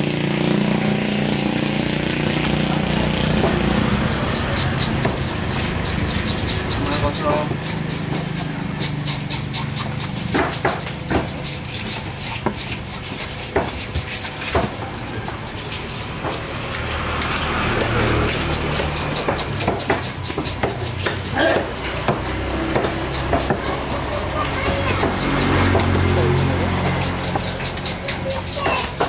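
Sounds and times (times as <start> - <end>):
knife knocking on wooden block: 17.8 - 24.0.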